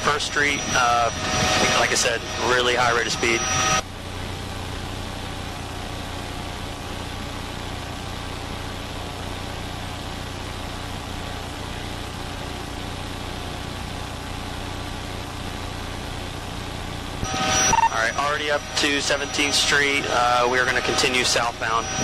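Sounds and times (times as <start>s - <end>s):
intercom hiss: 0.0s - 3.8s, 17.2s - 22.0s
helicopter drone through intercom: 0.0s - 22.0s.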